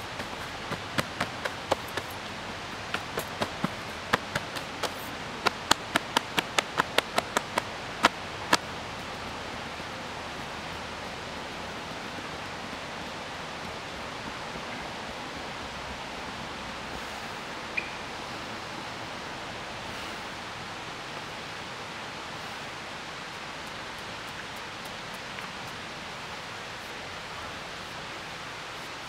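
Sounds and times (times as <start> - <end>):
outdoor background hiss: 0.0 - 29.0
sharp slaps: 2.9 - 8.7.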